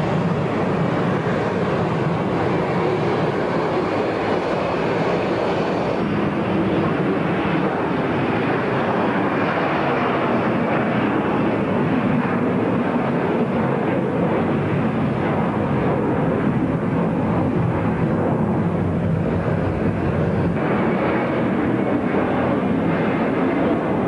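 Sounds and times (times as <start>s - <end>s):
jet engines roaring: 0.0s - 24.0s.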